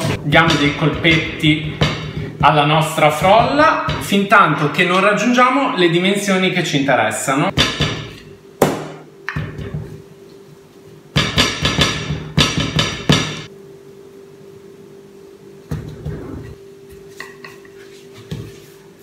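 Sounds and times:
rolling pin knocking on pastry: 0.3 - 4.3, 11.2 - 13.5.

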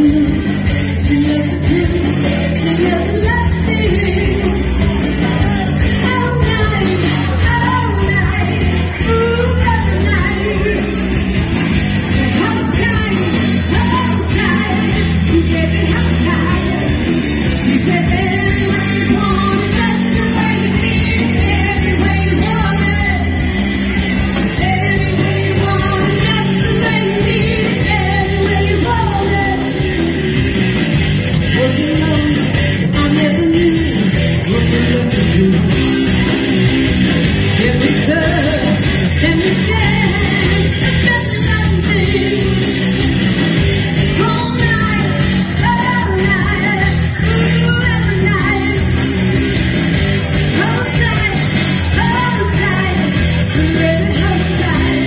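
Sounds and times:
person singing: 0.0 - 11.2, 31.4 - 36.7, 37.4 - 43.2, 44.1 - 49.2, 50.5 - 55.0
electric guitar: 0.0 - 55.0
live band playing loudly: 0.0 - 55.0.

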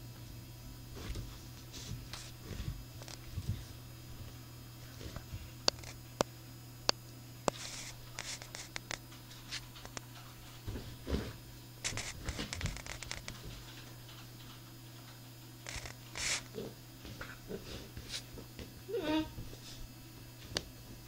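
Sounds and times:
paws scratching on bedspread: 0.9 - 6.0, 7.5 - 13.8, 15.6 - 18.5.

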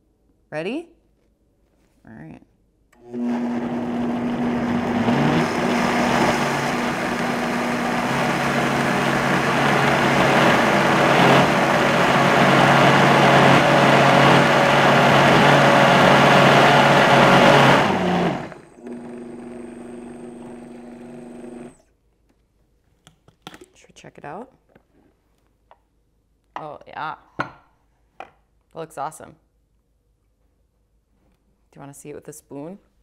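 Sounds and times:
blender running: 3.0 - 21.8.

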